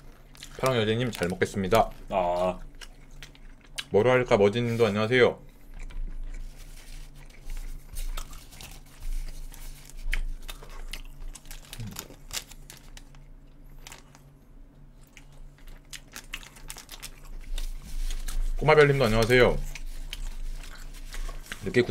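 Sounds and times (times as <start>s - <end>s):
chewing: 0.0s - 4.0s, 5.4s - 21.9s
paper wrapper crinkling: 6.4s - 14.3s, 15.6s - 21.9s.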